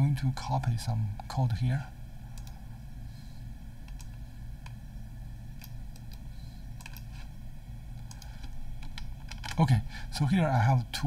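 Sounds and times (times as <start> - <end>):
low hum and hiss: 0.0 - 11.0
computer clicks: 2.3 - 2.6, 3.8 - 4.8, 5.6 - 7.2, 8.0 - 9.6.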